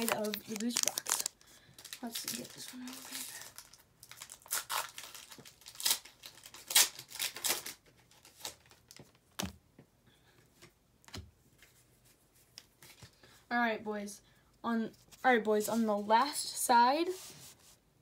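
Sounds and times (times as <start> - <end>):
foil wrapper crinkling and tearing: 0.0 - 8.9.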